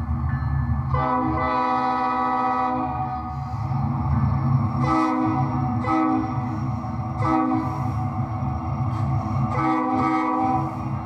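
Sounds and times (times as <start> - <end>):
train horn blasts: 0.9 - 3.7, 4.6 - 8.4, 9.2 - 11.0.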